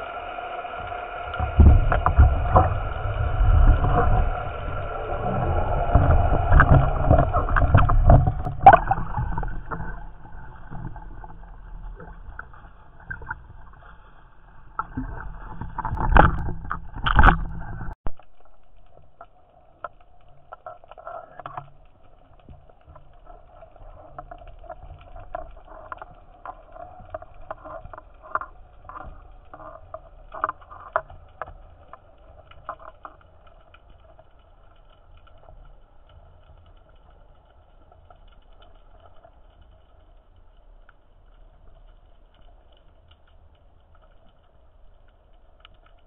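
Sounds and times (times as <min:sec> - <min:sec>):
underwater water noise: 0:00.0 - 0:46.0
sharp clicks and knocks: 0:14.8 - 0:21.7.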